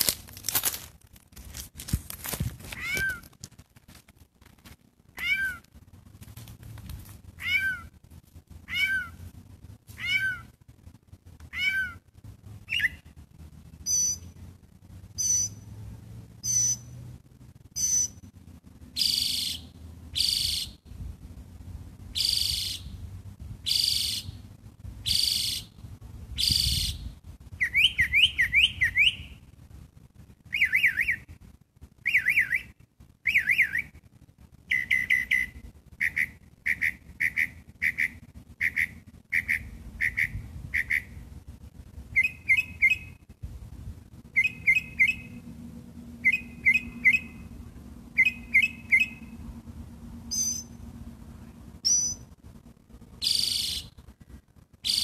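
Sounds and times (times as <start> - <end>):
songbird singing: 11.4 - 13.2, 13.8 - 15.8, 16.4 - 21.1, 22.0 - 29.6, 30.4 - 41.3, 42.1 - 43.4, 44.2 - 52.4, 53.1 - 55.0.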